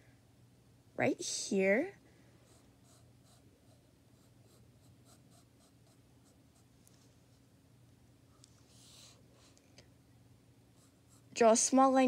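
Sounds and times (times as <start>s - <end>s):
pencil scratching on paper: 2.5s - 6.7s.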